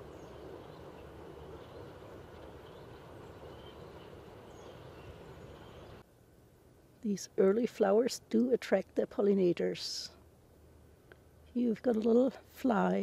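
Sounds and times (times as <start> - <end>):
distant bird chirps: 0.0 - 6.0.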